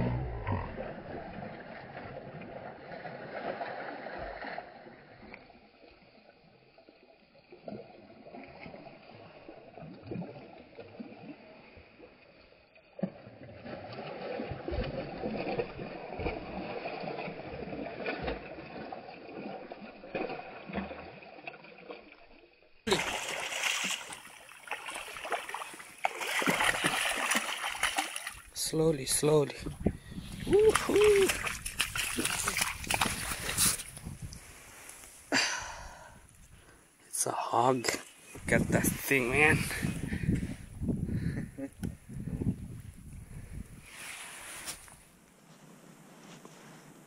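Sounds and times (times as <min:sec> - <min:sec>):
fish splashing in shallow water: 0:00.8 - 0:28.6, 0:30.0 - 0:36.8.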